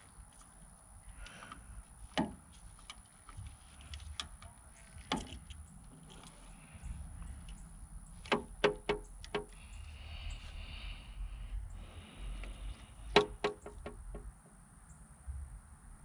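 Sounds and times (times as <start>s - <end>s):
low background rumble: 0.0s - 16.0s
plastic parts clicks and taps: 8.3s - 9.6s, 13.1s - 14.3s.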